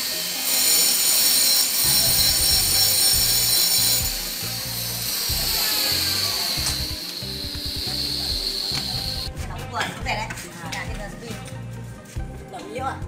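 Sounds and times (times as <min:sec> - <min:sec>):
music with low bass line: 0:01.9 - 0:13.0.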